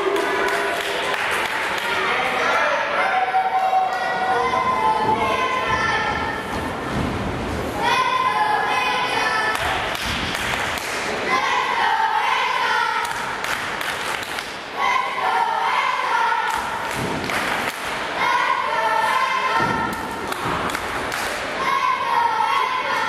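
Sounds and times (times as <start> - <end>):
audience chanting in unison: 14.8 - 16.9, 18.1 - 20.6.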